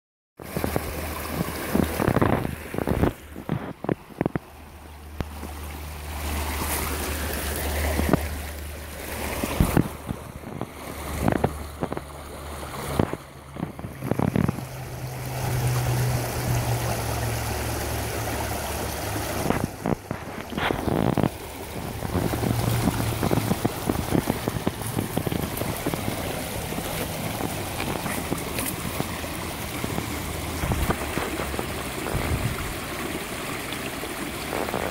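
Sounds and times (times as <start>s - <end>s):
wind on microphone: 0.4s - 4.5s, 9.3s - 32.9s
stream rushing over stones: 0.4s - 34.9s.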